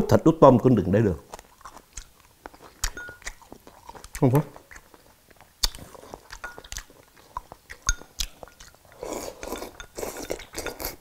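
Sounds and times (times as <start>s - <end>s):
chopsticks clinking on ceramic bowl: 2.8s - 3.4s, 6.3s - 6.9s, 7.7s - 8.8s, 9.4s - 10.9s
soup slurping: 5.8s - 11.0s.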